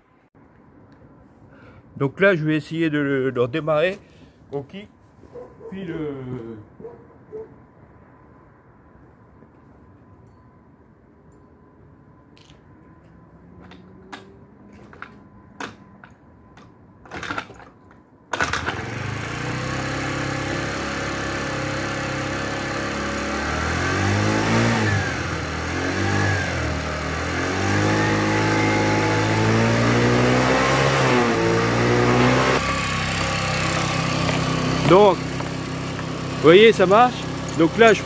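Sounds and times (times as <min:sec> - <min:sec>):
sharp clicks and knocks: 0:13.6 - 0:18.5
scooter engine revving: 0:18.3 - 0:38.0.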